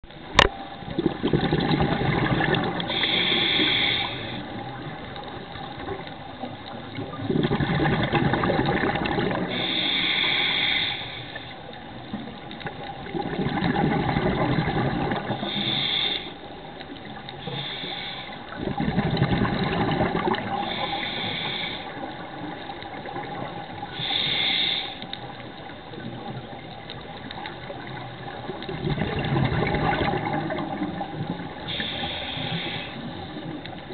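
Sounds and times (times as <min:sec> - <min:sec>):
bubbling exhale underwater: 0:00.4 - 0:06.0, 0:06.9 - 0:09.8, 0:12.7 - 0:15.8, 0:18.5 - 0:21.4, 0:27.2 - 0:33.9
hissing inhale through regulator: 0:02.8 - 0:04.9, 0:09.3 - 0:11.9, 0:15.2 - 0:18.8, 0:20.4 - 0:23.0, 0:23.7 - 0:25.7, 0:30.9 - 0:33.9.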